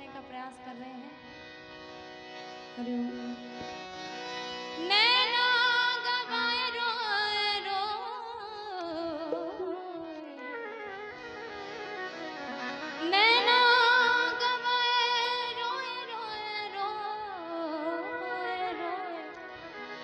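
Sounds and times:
woman singing: 0.0 - 1.1, 2.8 - 3.6, 4.8 - 11.2, 13.0 - 19.5
harmonium playing held notes: 0.0 - 20.0.

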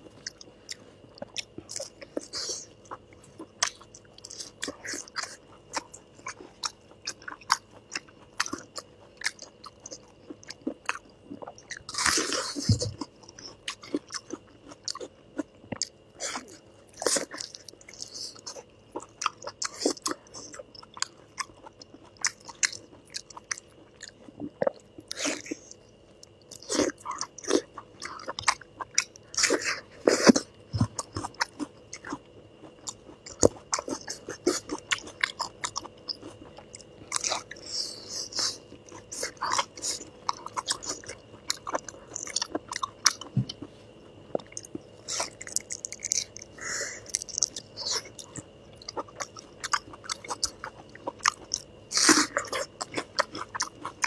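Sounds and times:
chewing and biting: 0.0 - 43.7, 44.3 - 54.0.

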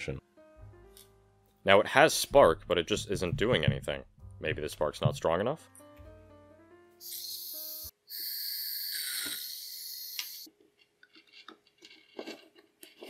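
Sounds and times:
gas hissing from torch nozzle: 7.0 - 10.5.

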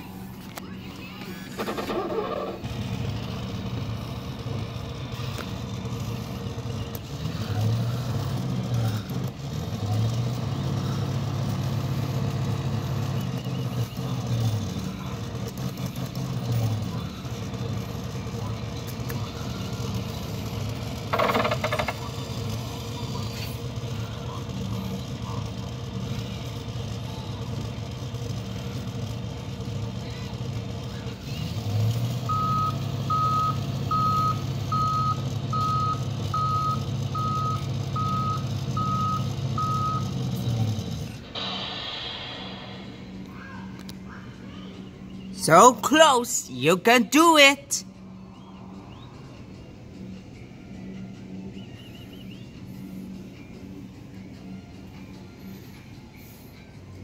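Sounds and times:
claw machine hum: 0.0 - 31.6, 32.8 - 45.6
brief loud sound: 41.4 - 43.8.

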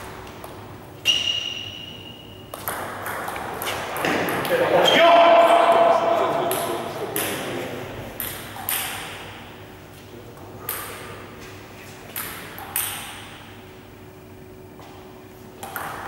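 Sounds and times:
table tennis ball clicking: 15.6 - 16.0.

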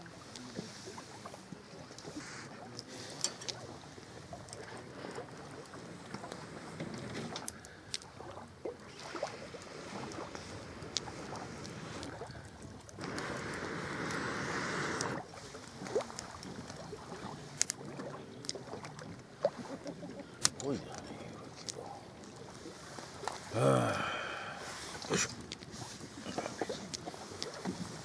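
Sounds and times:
fire crackling and snapping: 9.6 - 17.8
air blown through a pipe: 13.0 - 15.2.

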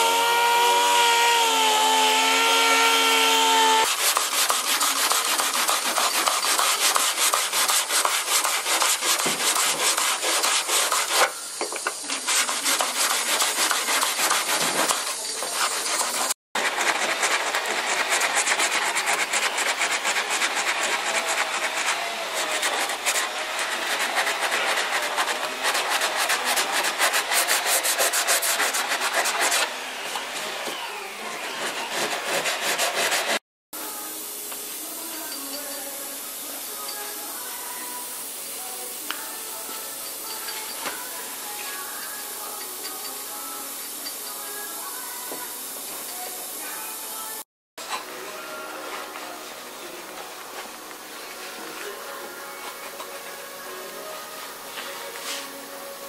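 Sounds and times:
pneumatic orbital sander whining: 0.0 - 3.9
abrasive pad rubbing on metal: 0.0 - 29.7.

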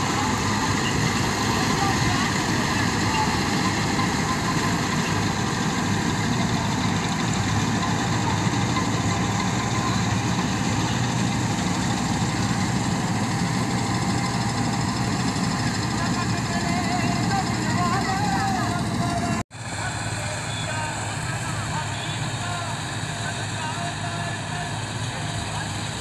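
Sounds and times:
straw reaper mechanical din: 0.0 - 19.4
tractor engine running: 0.0 - 26.0.

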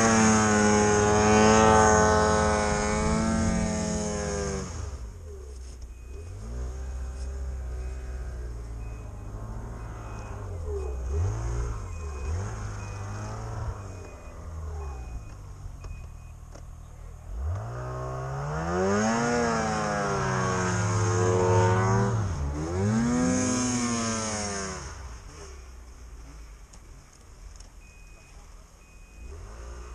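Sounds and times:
engine revving: 0.0 - 5.4, 6.1 - 26.8, 29.1 - 29.9
snowmobile engine idling: 0.0 - 17.4
faint repeating beep: 5.9 - 6.4, 7.8 - 16.5, 27.8 - 29.6.

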